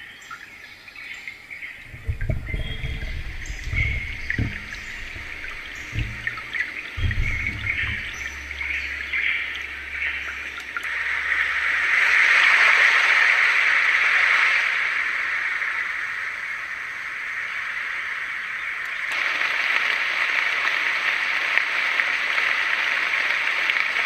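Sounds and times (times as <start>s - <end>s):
trickling water: 0.0s - 24.0s
bird chirps: 0.1s - 11.6s
static-like hiss: 1.5s - 24.0s
microphone arm thuds: 1.8s - 10.9s.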